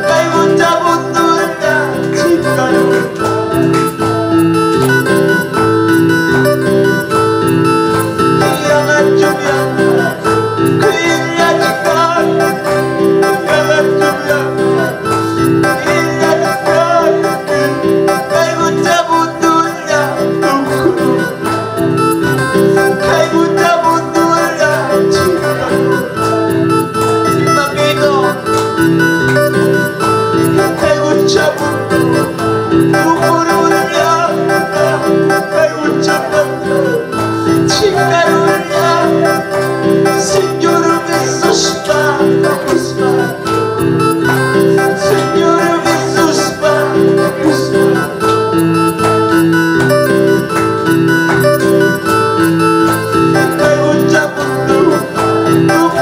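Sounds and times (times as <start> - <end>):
man singing into a microphone: 0.0 - 5.0, 7.9 - 49.5, 52.9 - 56.0
electronic keyboard plucked sound: 0.0 - 56.0.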